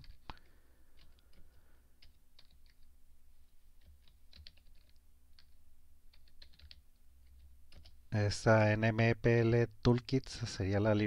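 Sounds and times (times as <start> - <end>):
faint keyboard typing: 0.0 - 8.1.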